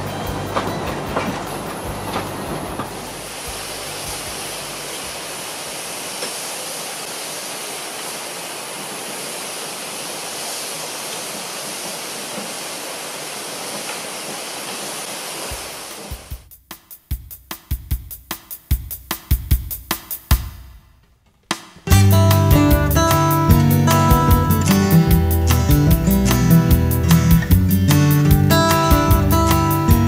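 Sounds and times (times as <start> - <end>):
train wheels clicking: 0.0 - 3.4
steam hissing from locomotive: 1.6 - 16.4.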